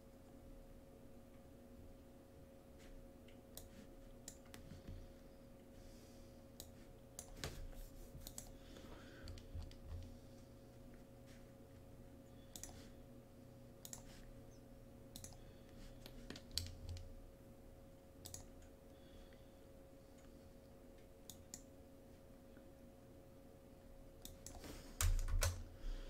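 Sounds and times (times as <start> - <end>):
faint steady hum: 0.0 - 26.0
mouse and keyboard clicks: 13.8 - 14.1, 15.2 - 15.4.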